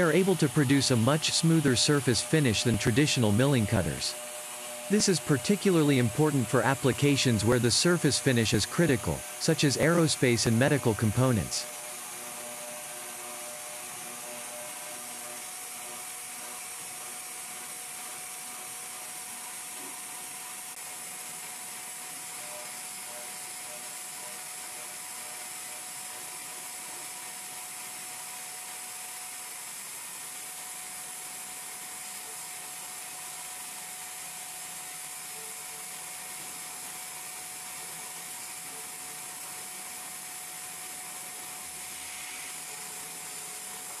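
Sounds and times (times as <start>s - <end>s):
milling machine cutting metal: 0.0s - 19.6s, 35.3s - 44.0s
steady tone: 4.9s - 11.6s.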